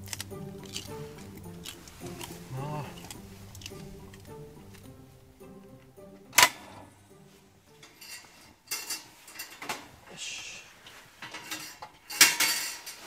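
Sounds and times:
hard objects clinking: 0.0 - 5.0
short rustle: 7.2 - 13.0.

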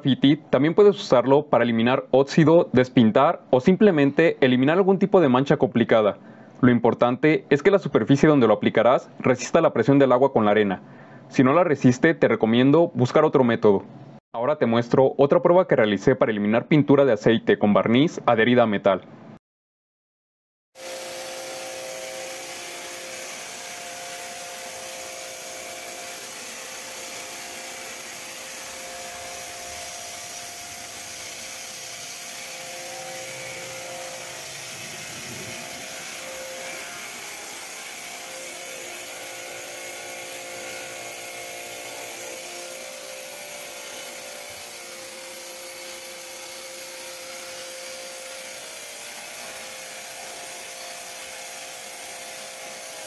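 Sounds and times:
pressure washer whine: 20.8 - 53.0
water and sand jet hissing on metal: 20.8 - 53.0.

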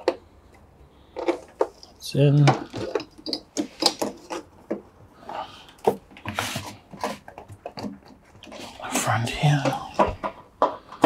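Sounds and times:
rubbing rustle: 6.2 - 7.5.

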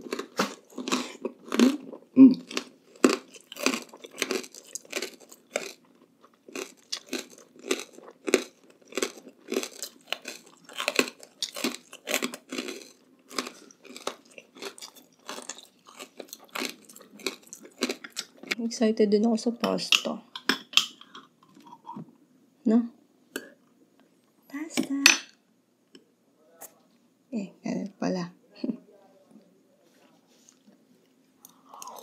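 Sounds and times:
chewing crunchy food: 0.0 - 18.6, 30.4 - 32.0.

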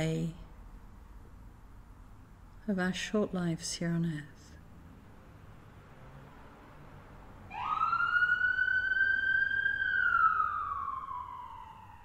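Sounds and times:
emergency siren wailing: 7.5 - 12.0.

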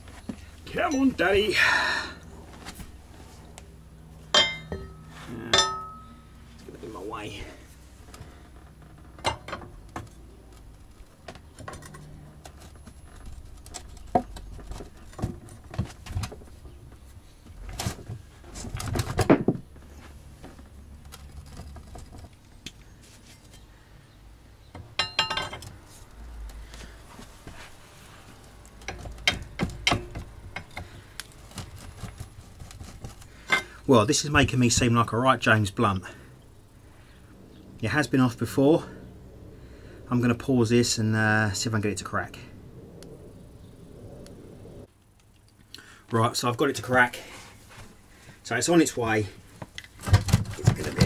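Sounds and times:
metal tools clinking and knocking: 4.3 - 6.3, 25.0 - 25.7, 33.4 - 33.8
ringing metal clatter: 4.3 - 6.4, 25.0 - 25.6.

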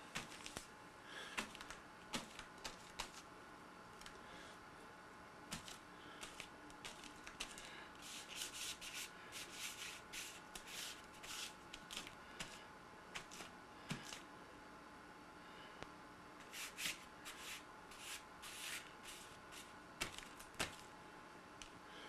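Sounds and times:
fingers rubbing paint on paper: 5.6 - 12.6.

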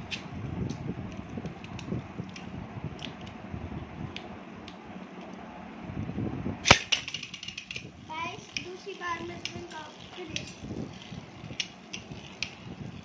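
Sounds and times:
spinning tops rumbling: 6.6 - 13.0.

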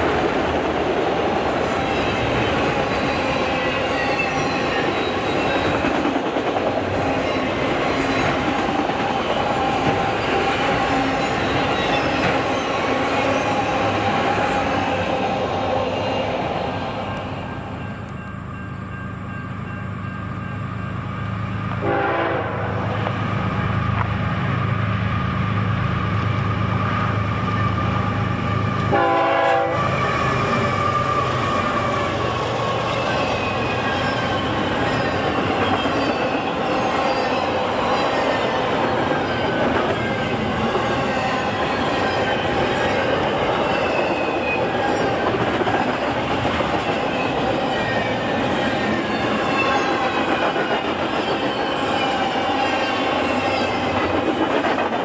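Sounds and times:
train cars rumbling by: 0.0 - 55.0
locomotive horn blasts: 21.8 - 22.9, 28.9 - 30.0.

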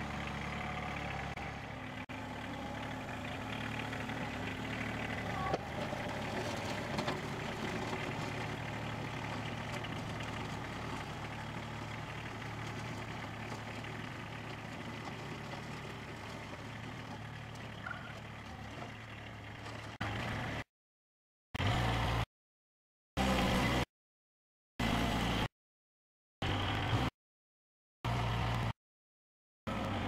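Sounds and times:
tractor engine running: 0.0 - 20.6.

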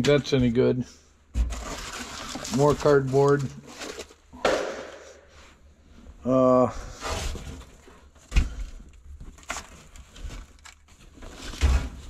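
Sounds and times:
rustling and clattering of junk: 1.3 - 4.3, 6.9 - 12.0
thud: 4.4 - 5.3.

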